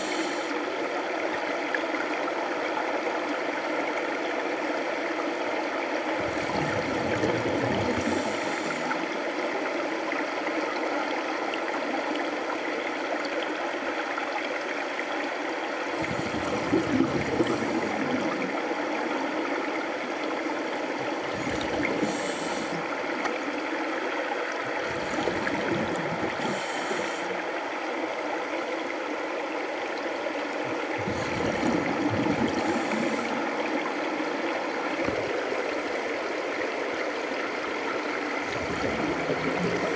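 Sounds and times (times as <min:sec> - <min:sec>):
underwater rush of water: 0:00.0 - 0:39.9
bubbles gurgling: 0:06.2 - 0:08.8, 0:16.0 - 0:18.6, 0:21.0 - 0:23.2, 0:24.5 - 0:27.2, 0:30.6 - 0:39.9.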